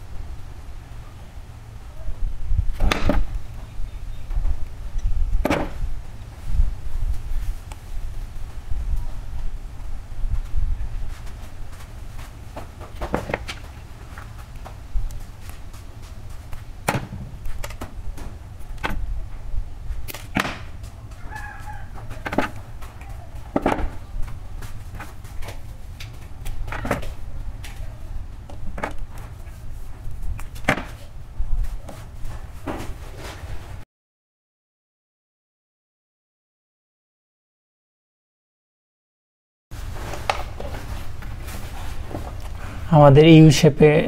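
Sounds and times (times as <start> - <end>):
low steady rumble: 0.0 - 33.8.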